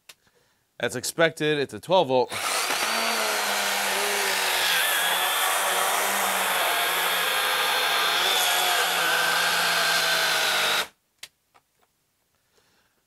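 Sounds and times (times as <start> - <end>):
electric motor whine: 2.3 - 10.9
saw chain rasping through wood: 2.3 - 10.9.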